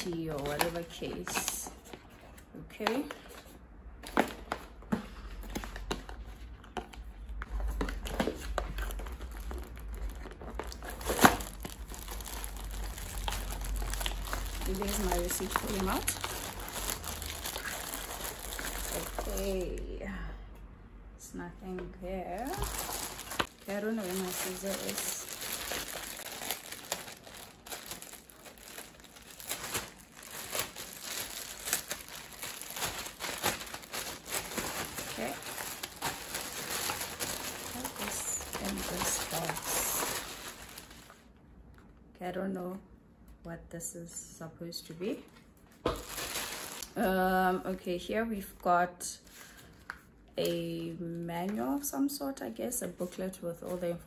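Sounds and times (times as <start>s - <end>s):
packaging rustling and crinkling: 0.0s - 19.8s, 22.3s - 41.3s, 45.4s - 47.0s.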